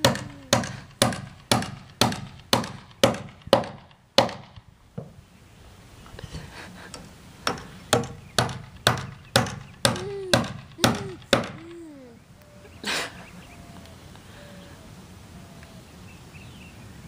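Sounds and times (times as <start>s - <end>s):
baby vocalizing: 0.0s - 0.9s, 9.9s - 12.2s.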